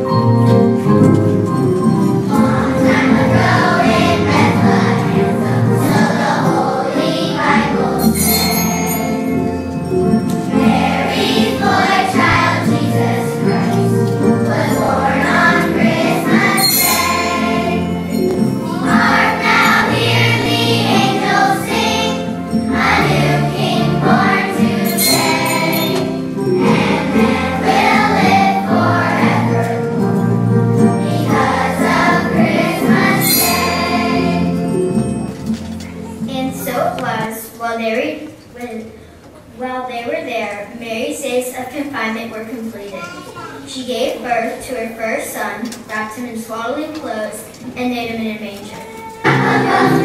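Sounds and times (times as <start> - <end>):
steady musical accompaniment: 0.0 - 37.1, 49.1 - 50.0
jingling percussion: 0.1 - 6.7, 7.8 - 36.3
children's choir singing: 1.8 - 35.3, 49.2 - 50.0.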